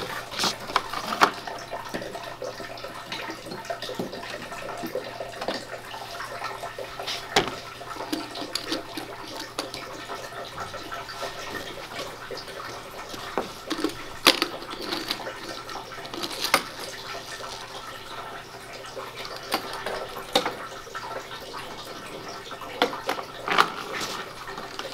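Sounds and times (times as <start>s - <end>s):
water fountain trickling: 0.0s - 24.9s
plastic toy cars clicking: 13.1s - 17.6s.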